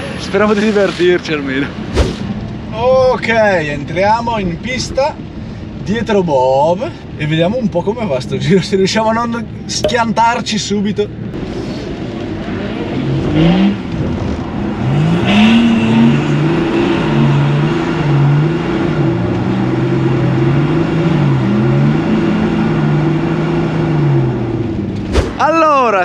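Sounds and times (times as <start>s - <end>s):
car engine revving: 12.0s - 25.4s.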